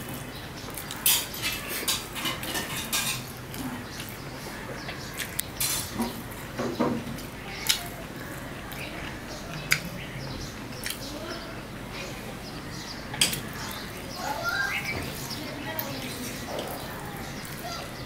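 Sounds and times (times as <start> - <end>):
chewing and mouth smacks: 5.1 - 5.5, 10.8 - 11.1.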